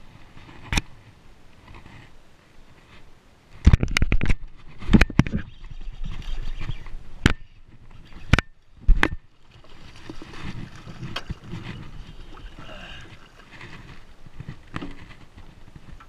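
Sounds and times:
water lapping around boat: 7.6s - 16.0s.

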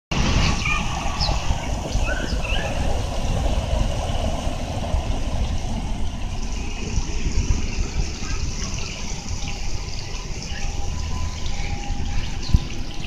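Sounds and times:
steady wash of noise: 0.1s - 13.0s
wind buffeting microphone: 0.1s - 13.0s
bird chirps: 2.0s - 2.8s, 10.4s - 13.0s.

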